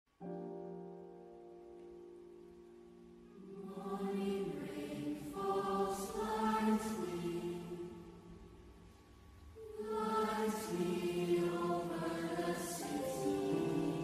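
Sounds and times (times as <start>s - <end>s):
choir singing: 3.4s - 8.6s, 9.6s - 14.0s.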